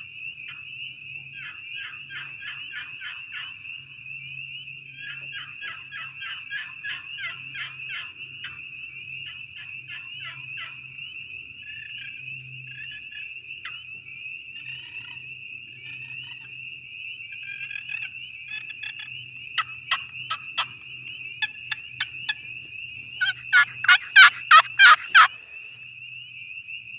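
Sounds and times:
box turkey call notes: 0:17.3 - 0:25.5.

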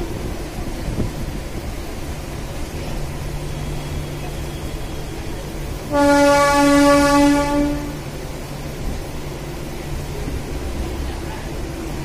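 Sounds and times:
electric train running: 0:00.0 - 0:12.0
train horn blast: 0:03.5 - 0:08.1.

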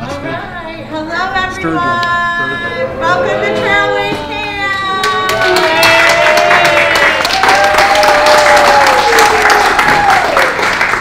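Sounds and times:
voices holding sliding notes: 0:01.1 - 0:05.8
people clapping: 0:04.9 - 0:11.0.

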